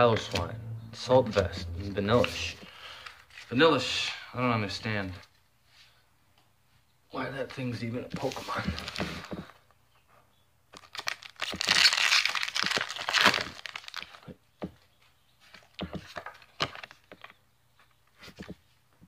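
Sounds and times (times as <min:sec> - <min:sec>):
wrapper crinkling and clicks: 0:10.7 - 0:14.3
foil wrapper tearing: 0:10.8 - 0:14.2.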